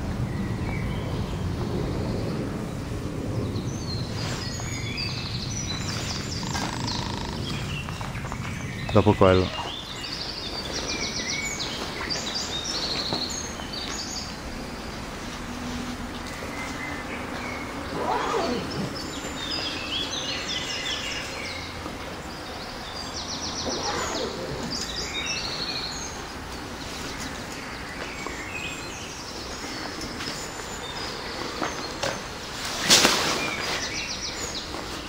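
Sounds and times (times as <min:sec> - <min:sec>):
small birds chirping: 0:00.2 - 0:15.4, 0:16.1 - 0:35.0.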